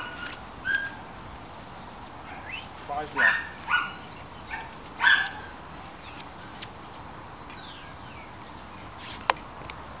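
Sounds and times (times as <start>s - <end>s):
dog yipping: 0.0s - 1.0s, 3.2s - 5.5s.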